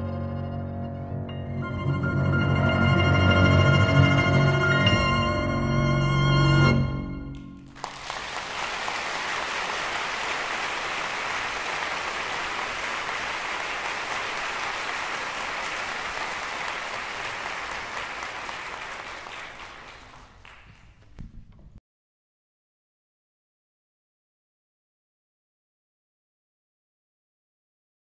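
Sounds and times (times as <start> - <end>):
applause: 7.3 - 21.3.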